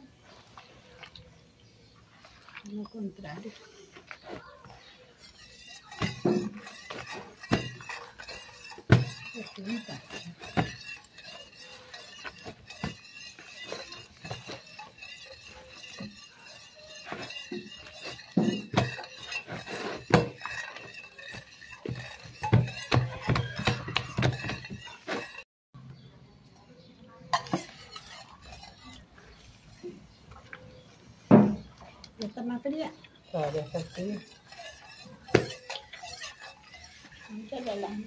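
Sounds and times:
dough squelching and slapping: 0:02.0 - 0:25.4, 0:32.0 - 0:38.0.

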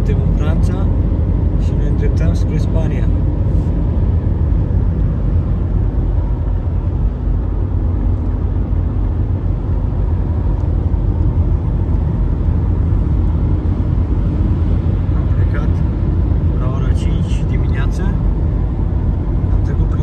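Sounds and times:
car cabin road and engine rumble: 0:00.0 - 0:20.0.

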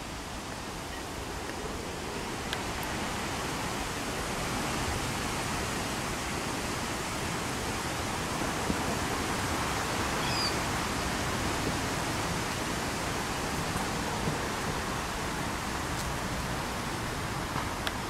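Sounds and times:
wind rushing on microphone: 0:00.0 - 0:18.0
faint high chirp: 0:10.2 - 0:10.6.

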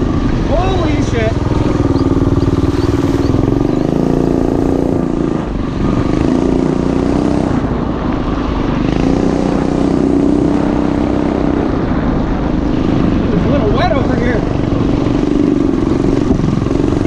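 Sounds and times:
mini bike engine revving: 0:00.0 - 0:07.6.

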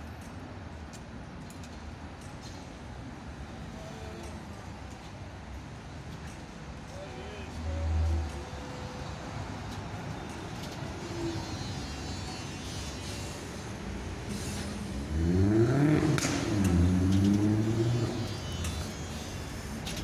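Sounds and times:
wheels rumbling on rails: 0:00.0 - 0:20.0
tram motor whine: 0:07.8 - 0:20.0.

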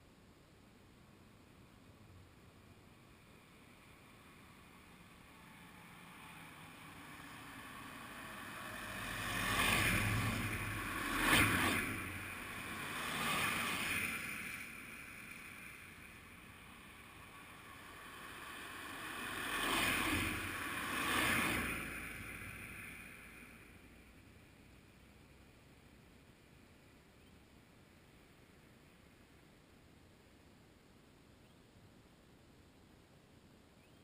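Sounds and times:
vehicles passing by: 0:01.9 - 0:26.8.

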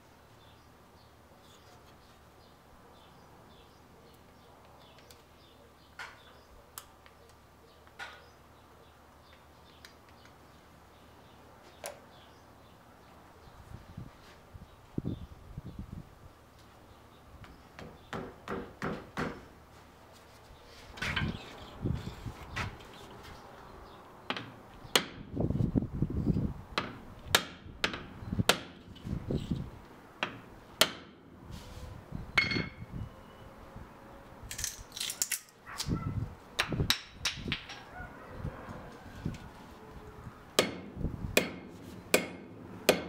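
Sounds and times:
axe head knocking on anvil: 0:32.4 - 0:32.8, 0:40.6 - 0:43.0.

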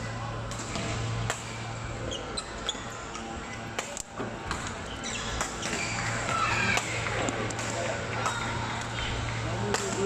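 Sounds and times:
shoes squeaking on court floor: 0:02.1 - 0:03.6, 0:04.4 - 0:07.3.

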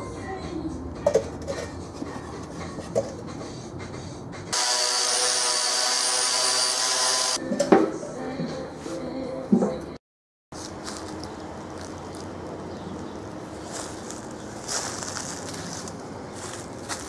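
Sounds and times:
power tool whining on sheet metal: 0:04.5 - 0:07.4.

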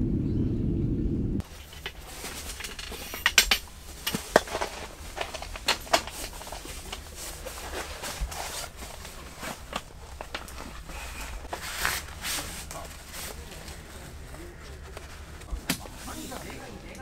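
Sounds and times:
low steady rumble: 0:00.0 - 0:02.8.

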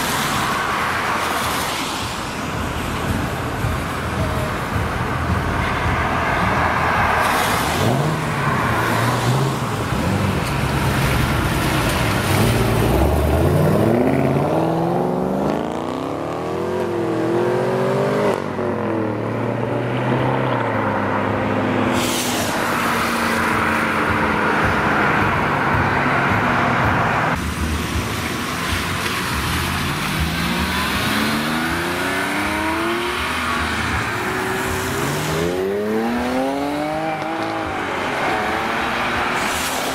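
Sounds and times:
sports cars accelerating hard: 0:02.4 - 0:39.9.

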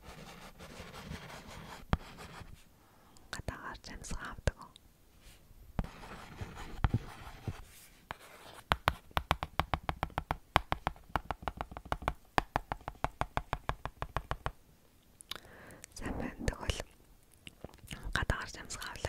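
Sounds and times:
faint scratching on plastic: 0:00.0 - 0:02.6, 0:05.3 - 0:08.7.

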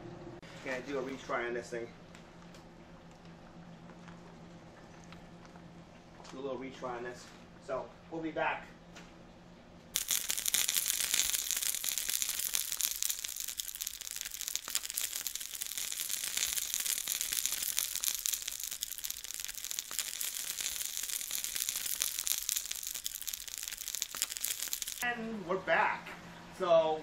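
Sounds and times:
deep frying sizzle: 0:10.0 - 0:25.1.

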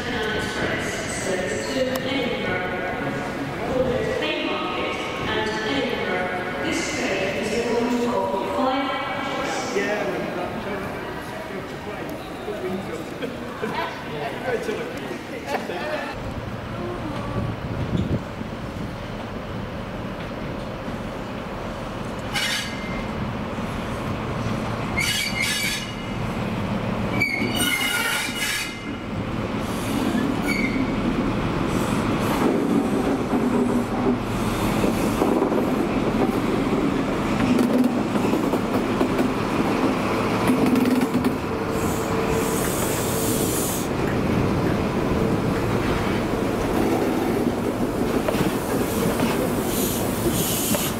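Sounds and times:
train running along rails: 0:00.0 - 0:50.9.

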